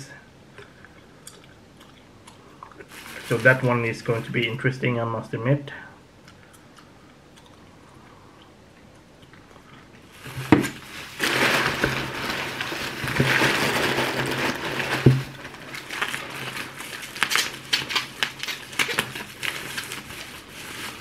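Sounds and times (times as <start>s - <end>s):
cardboard and bubble-wrap rustling: 2.9s - 4.6s, 10.1s - 21.0s.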